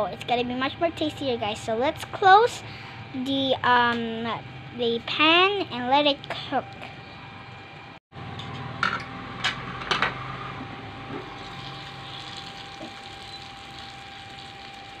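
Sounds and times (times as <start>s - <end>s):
chicken sizzling in grill pan: 11.3s - 15.0s.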